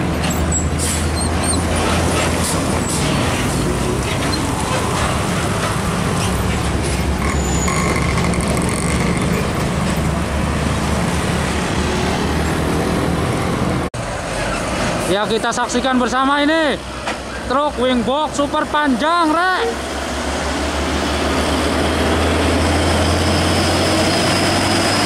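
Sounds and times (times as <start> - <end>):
diesel trucks passing: 0.0 - 25.0
tyre and road noise: 0.0 - 25.0
short high tone: 7.2 - 9.2.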